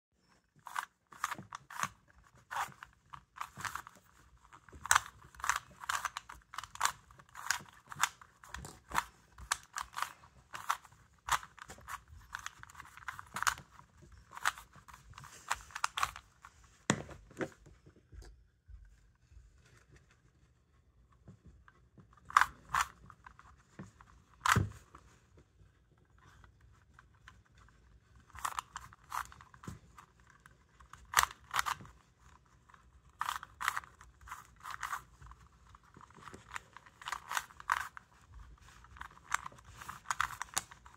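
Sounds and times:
puzzle cube clicking as turned: 0.6 - 16.3, 22.2 - 23.5, 28.2 - 40.9.

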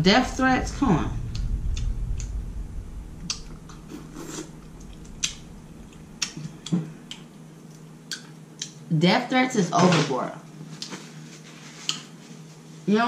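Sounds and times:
low rumble: 0.0 - 8.2.

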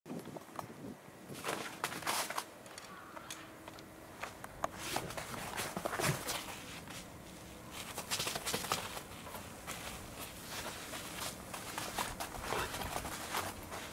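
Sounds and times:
dog footsteps on artificial turf: 4.2 - 13.9.

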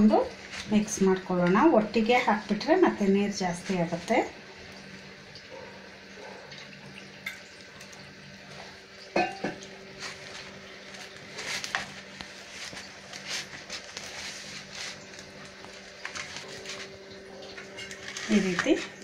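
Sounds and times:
hand squishing wet dough: 10.0 - 17.2.

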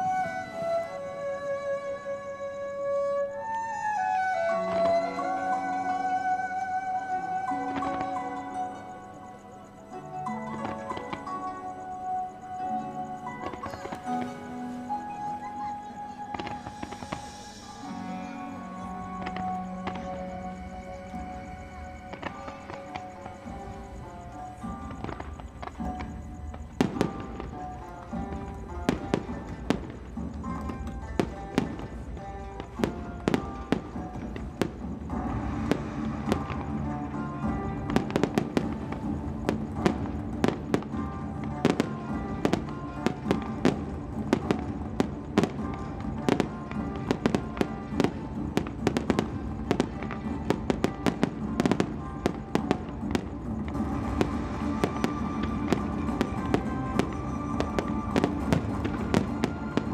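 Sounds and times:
fireworks bangs and crackles: 0.0 - 1.8, 2.6 - 15.2, 15.9 - 59.9
music: 0.0 - 59.9.

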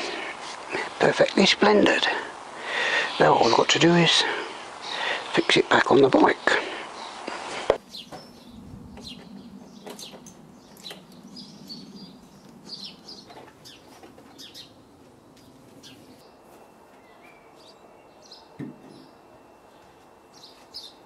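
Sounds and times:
small birds chirping: 0.0 - 16.4, 17.0 - 21.0.

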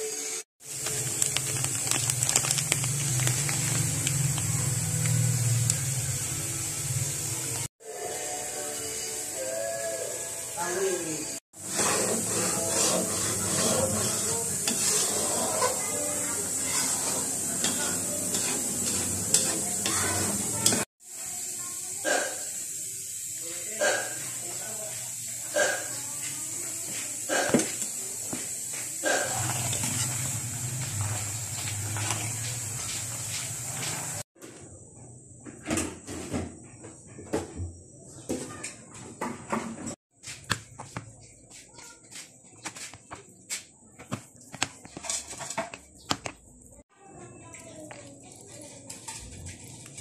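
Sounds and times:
coconut milk sizzling in wok: 0.0 - 35.3, 40.2 - 50.0
utensil scraping metal pan: 11.6 - 20.9, 44.8 - 46.1, 48.2 - 50.0
spoon scraping plastic tray: 44.0 - 46.4.

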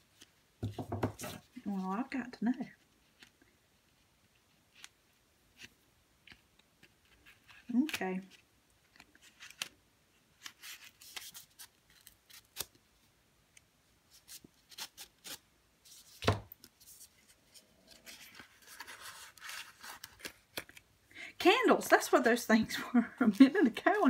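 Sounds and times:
dull knock: 0.6 - 1.2
paper rustling and sliding: 15.8 - 20.8.

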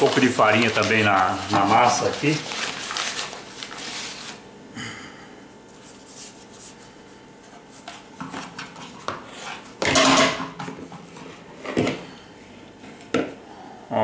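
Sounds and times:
cloth rustling: 0.0 - 4.4
handling bread dough: 0.0 - 4.4
bowl clattering on metal pot: 9.8 - 10.8.

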